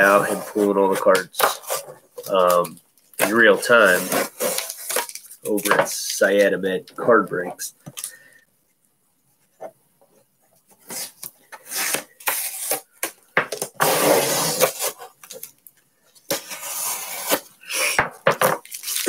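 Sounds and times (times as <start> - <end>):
rustling and scraping of packaging: 0.0 - 6.5, 10.5 - 19.0.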